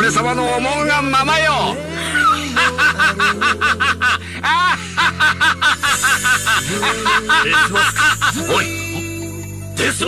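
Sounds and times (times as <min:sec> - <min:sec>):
background music: 0:00.0 - 0:10.0
man laughing villainously: 0:01.9 - 0:09.0.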